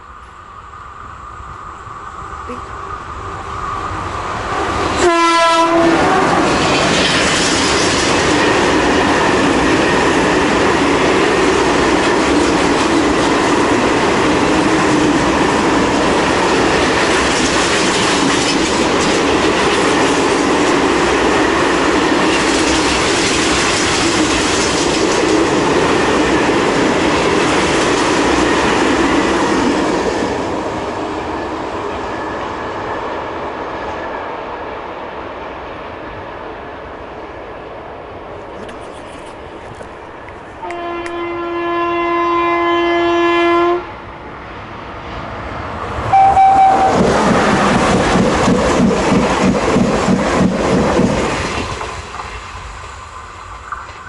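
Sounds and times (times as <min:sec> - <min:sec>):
train horn blast: 0:04.9 - 0:06.6, 0:40.6 - 0:44.0, 0:46.1 - 0:47.0.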